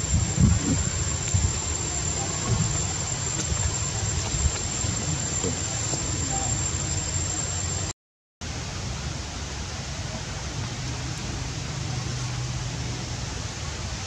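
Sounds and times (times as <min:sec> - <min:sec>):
thin high whine: 0:00.0 - 0:08.7
outdoor background hiss: 0:00.0 - 0:14.0.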